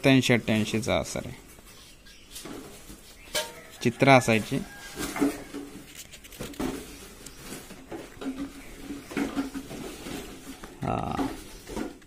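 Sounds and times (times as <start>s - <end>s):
chicken calls: 1.6s - 5.9s
paper pages being turned: 4.8s - 7.8s.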